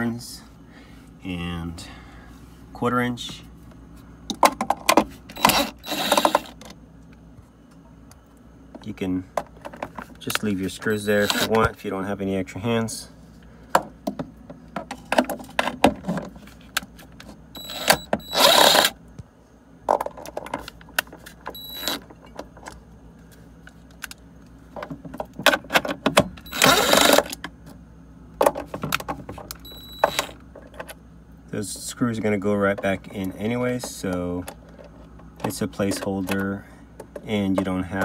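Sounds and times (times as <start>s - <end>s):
cordless drill spinning screws: 5.4s - 6.6s, 11.2s - 11.6s, 17.6s - 18.9s, 21.6s - 22.0s, 26.5s - 27.3s.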